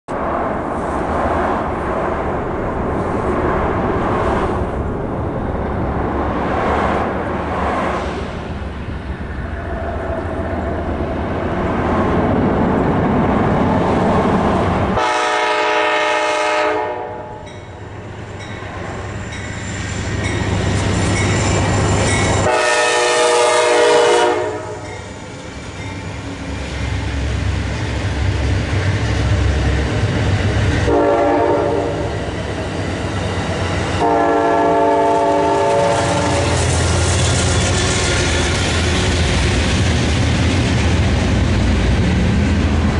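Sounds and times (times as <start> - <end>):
gusting rushing noise: 0.1 - 16.2, 17.1 - 42.9
train rumble: 0.1 - 42.9
train horn blasts: 15.0 - 17.6, 22.4 - 25.0, 30.8 - 32.2, 34.0 - 36.8
train cars clattering: 17.4 - 42.9.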